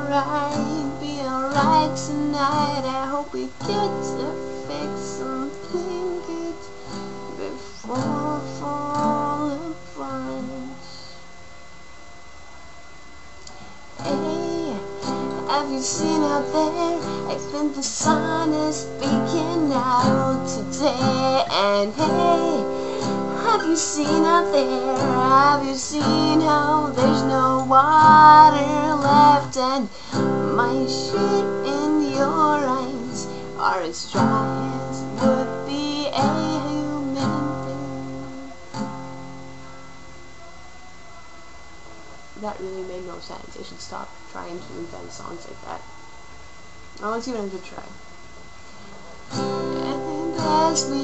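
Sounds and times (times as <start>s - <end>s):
woman singing: 0.0s - 11.1s, 14.0s - 38.6s, 49.5s - 51.0s
strummed acoustic guitar: 0.0s - 11.3s, 13.5s - 40.3s, 48.7s - 51.0s.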